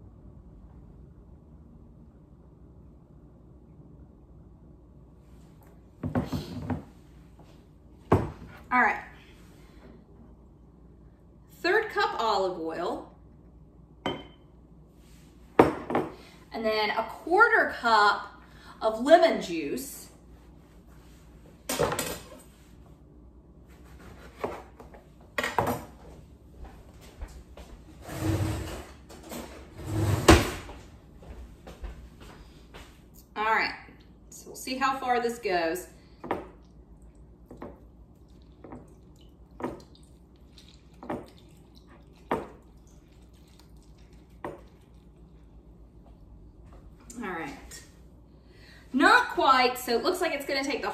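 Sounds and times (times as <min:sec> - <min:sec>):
knife and glassware knocking: 0:14.1 - 0:14.4
squishing lemon pulp: 0:36.0 - 0:47.0
juice dripping into glass: 0:36.6 - 0:45.6.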